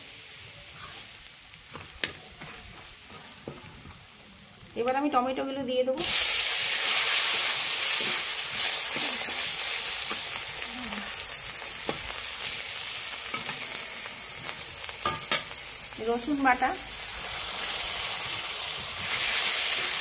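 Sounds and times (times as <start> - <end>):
tomatoes sizzling in hot oil: 0.0 - 20.0
metal spatula scraping and tapping: 15.0 - 15.5.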